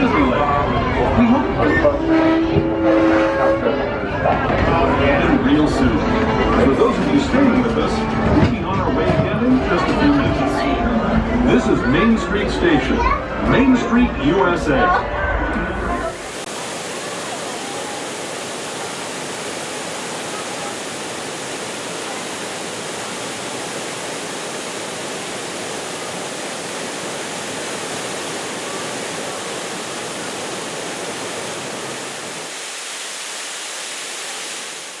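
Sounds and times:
waterfall rushing over rocks: 0:16.0 - 0:35.0.

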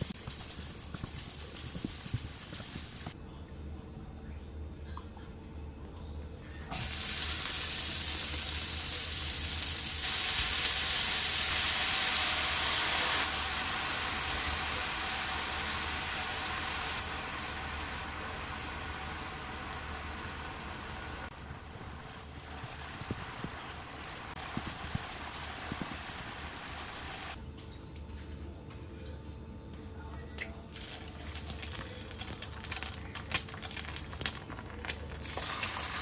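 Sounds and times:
steady hissing: 0:00.0 - 0:03.2, 0:06.7 - 0:27.4.

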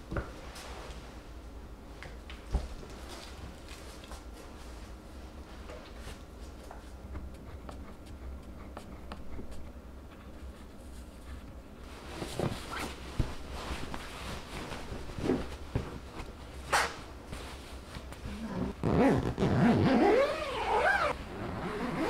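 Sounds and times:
fabric rustling and swishing: 0:10.6 - 0:22.0.

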